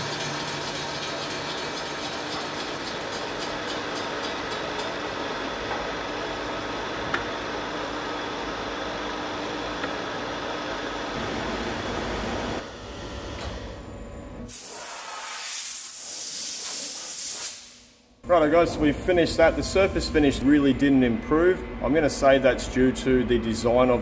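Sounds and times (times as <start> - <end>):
milling machine cutting metal: 0.0 - 5.8
compressed air blow gun hissing: 14.5 - 17.9.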